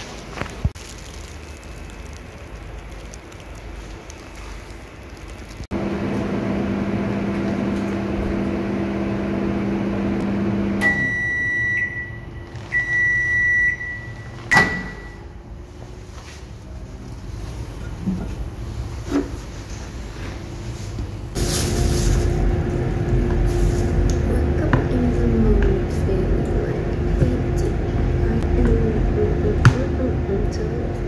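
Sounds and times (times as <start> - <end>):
microwave oven humming: 5.7 - 15.4, 21.0 - 31.0
microwave long high beeps: 10.6 - 15.4.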